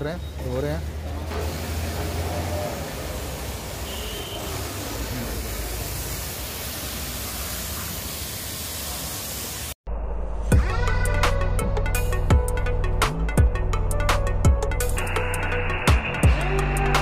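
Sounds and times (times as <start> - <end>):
pressure washer spraying water: 0.9 - 9.8
electronic music: 9.9 - 17.0.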